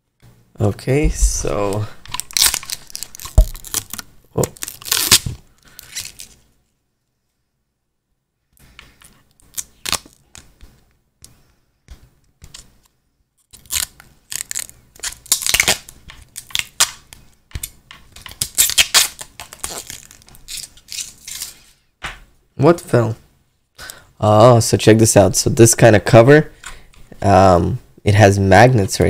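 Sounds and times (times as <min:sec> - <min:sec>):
face mask rustling and crinkling: 0:01.0 - 0:06.7, 0:18.1 - 0:21.8.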